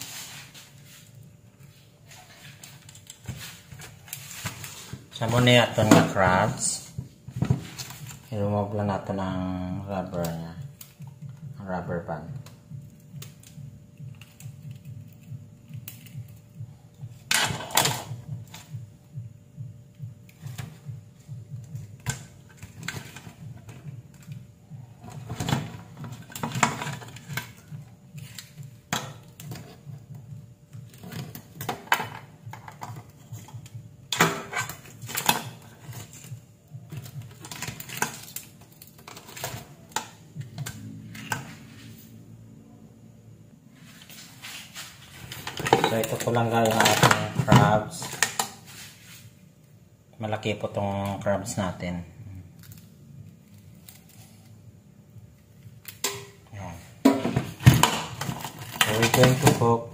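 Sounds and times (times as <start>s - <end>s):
low hum: 9.8s - 48.1s.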